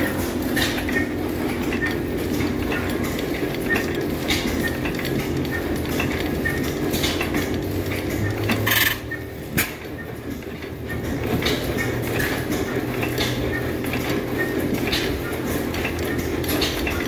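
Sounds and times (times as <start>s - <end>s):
gas engine clacking: 0.0s - 17.0s.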